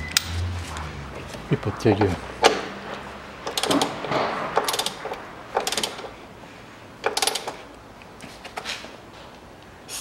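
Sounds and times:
ratchet wrench clicking: 0:07.0 - 0:07.6.

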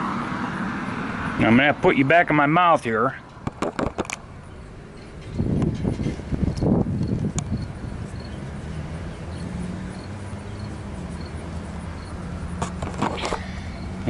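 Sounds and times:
vehicle engine rumbling: 0:00.0 - 0:14.0.

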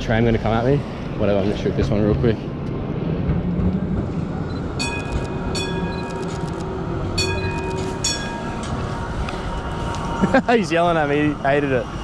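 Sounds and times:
tram rumbling: 0:00.0 - 0:12.0
tram warning bell ringing: 0:04.7 - 0:12.0.

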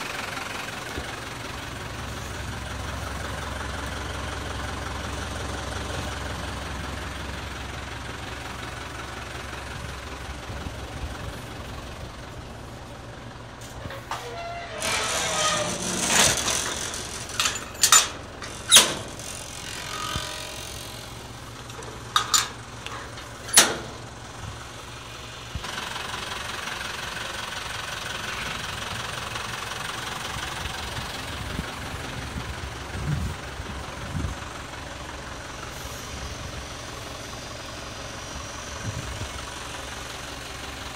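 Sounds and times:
winch engine running: 0:00.0 - 0:40.9
sharp metal clanks: 0:21.8 - 0:24.0.

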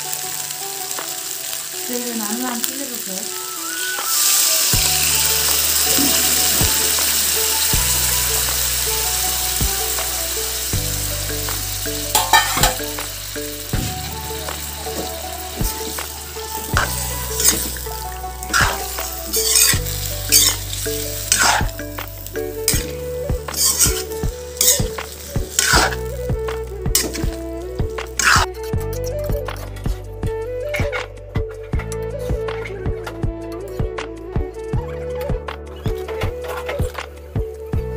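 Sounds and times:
curry sizzling in a pan: 0:00.0 - 0:29.0
background music: 0:00.0 - 0:37.9
metal ladle scraping a pan: 0:12.1 - 0:26.1, 0:26.9 - 0:27.4, 0:28.1 - 0:29.0.

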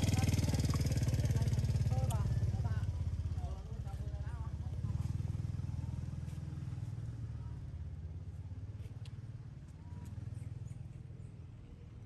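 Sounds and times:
small engine throbbing: 0:00.0 - 0:06.2.

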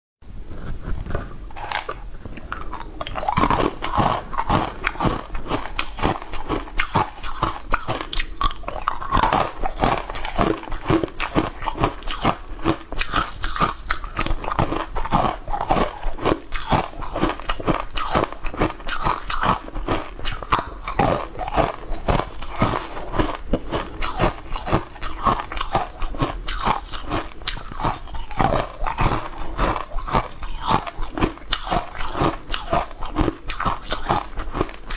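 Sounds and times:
ice cubes crunched by biting: 0:01.1 - 0:34.9.

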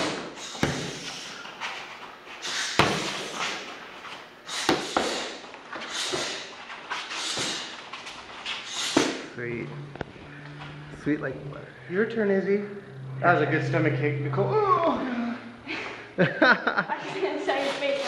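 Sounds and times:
punches and kicks hitting pads: 0:00.0 - 0:01.0, 0:02.7 - 0:03.6, 0:04.6 - 0:05.3.

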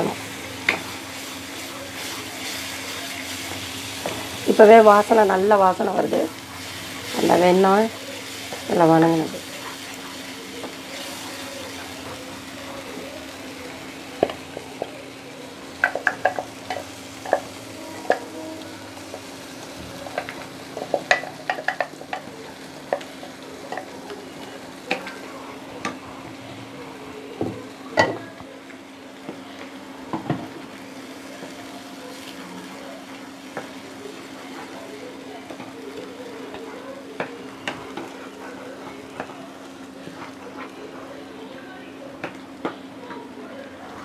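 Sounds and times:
paste sizzling in a pan: 0:00.0 - 0:44.0
spatula scraping and tapping pan: 0:15.8 - 0:18.4, 0:20.0 - 0:23.9.

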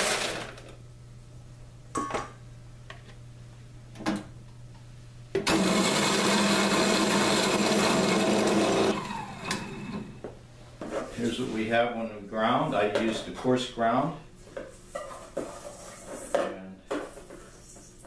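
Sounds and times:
coffee grinder grinding: 0:00.0 - 0:00.6, 0:05.5 - 0:10.2.

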